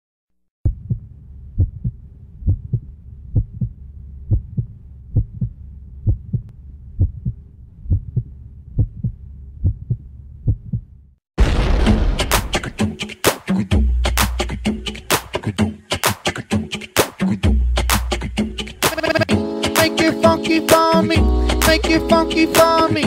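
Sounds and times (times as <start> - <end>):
heartbeat thuds: 0.7 - 10.9
faint low hum: 0.7 - 11.2.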